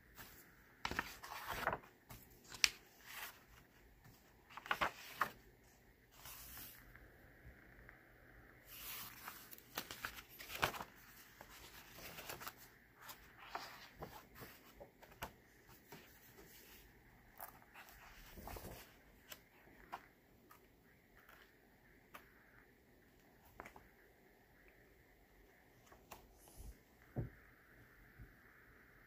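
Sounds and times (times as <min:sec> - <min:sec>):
book pages turning: 0:00.1 - 0:07.0, 0:08.6 - 0:22.3.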